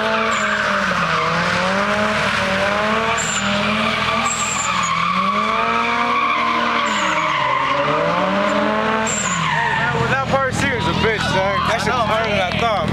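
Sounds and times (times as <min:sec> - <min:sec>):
short high tyre squeals: 0:00.0 - 0:10.2
car engines revving: 0:00.0 - 0:12.9
continuous tyre screech: 0:00.0 - 0:12.9.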